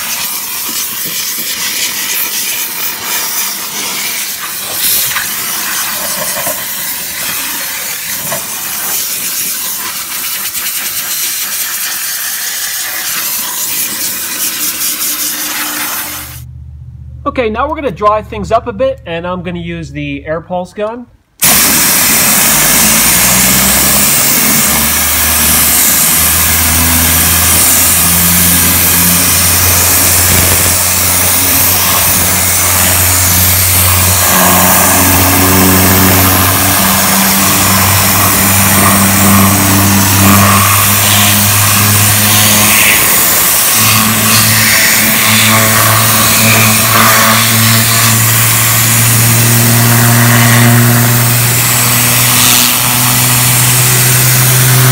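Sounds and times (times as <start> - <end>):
air gun blasting hiss: 0.0 - 16.5, 21.4 - 54.9
low hum: 15.3 - 19.6, 22.2 - 54.9.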